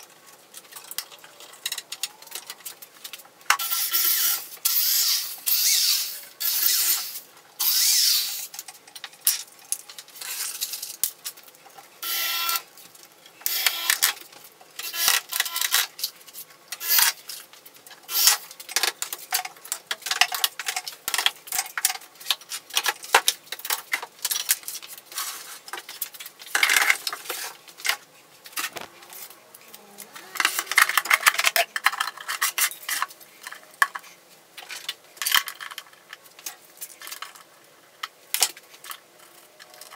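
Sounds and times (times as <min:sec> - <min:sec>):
electric drill boring into wood: 0:03.6 - 0:08.4, 0:12.0 - 0:12.6, 0:13.5 - 0:14.0.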